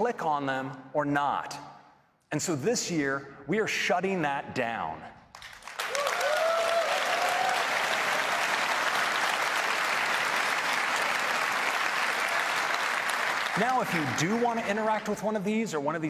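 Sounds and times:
audience applauding: 0:05.3 - 0:15.4
cheering shouts: 0:05.8 - 0:09.3.

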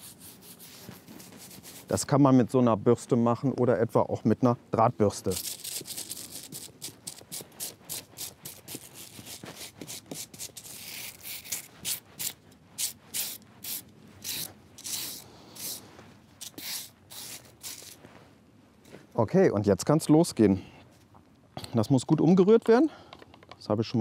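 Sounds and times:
stiff brush scrubbing bark: 0:00.0 - 0:02.0, 0:05.0 - 0:18.0.

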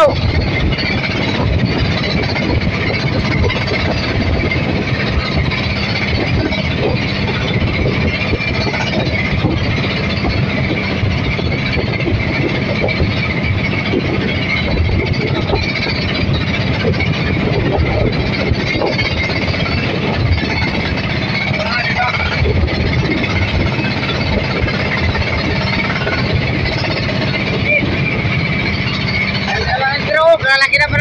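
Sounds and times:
boat engine droning: 0:00.0 - 0:31.0
high whine: 0:00.0 - 0:31.0.

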